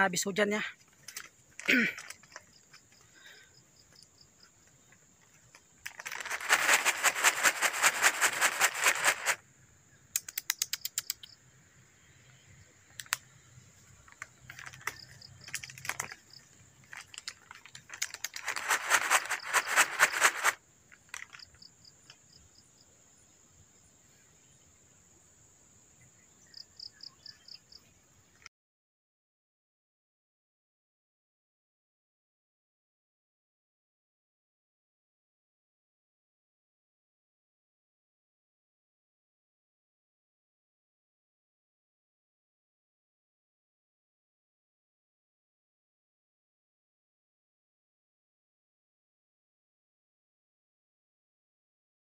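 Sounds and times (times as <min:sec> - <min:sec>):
high insect pips: 0:00.0 - 0:28.5
rapid insect clicking: 0:00.8 - 0:09.4, 0:10.1 - 0:11.4, 0:12.9 - 0:22.6
insect high-pitched whine: 0:00.9 - 0:28.4.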